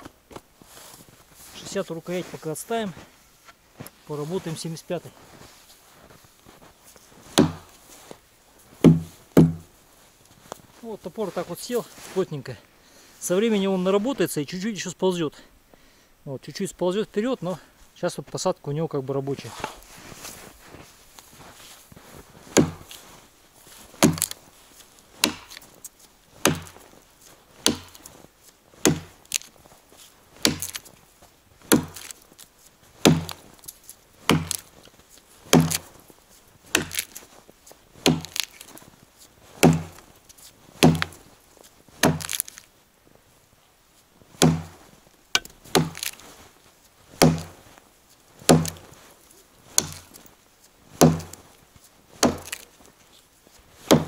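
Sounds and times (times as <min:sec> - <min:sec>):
axe chopping tree trunk: 0:07.3 - 0:07.8, 0:08.8 - 0:09.7, 0:22.5 - 0:23.0, 0:24.0 - 0:24.4, 0:25.2 - 0:25.7, 0:26.4 - 0:26.9, 0:27.6 - 0:28.1, 0:28.8 - 0:29.5, 0:30.4 - 0:30.9, 0:31.7 - 0:32.2, 0:33.0 - 0:33.5, 0:34.2 - 0:34.8, 0:35.5 - 0:36.0, 0:36.7 - 0:37.2, 0:38.0 - 0:38.7, 0:39.6 - 0:40.1, 0:40.8 - 0:41.2, 0:42.0 - 0:42.6, 0:44.4 - 0:44.8, 0:45.4 - 0:46.3, 0:47.2 - 0:47.6, 0:48.4 - 0:49.0, 0:49.7 - 0:50.3, 0:51.0 - 0:51.5, 0:52.2 - 0:52.7.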